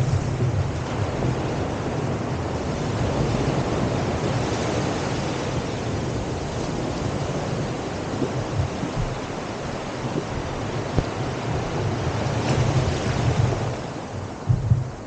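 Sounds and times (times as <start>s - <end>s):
waves washing: 0.0s - 15.0s
wind buffeting microphone: 0.0s - 15.0s.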